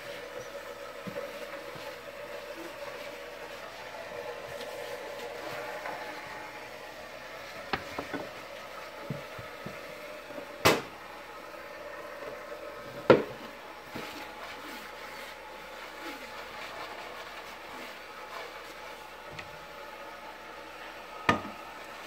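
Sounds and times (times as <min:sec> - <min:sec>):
cutting board knocking on counter: 0:13.0 - 0:13.4.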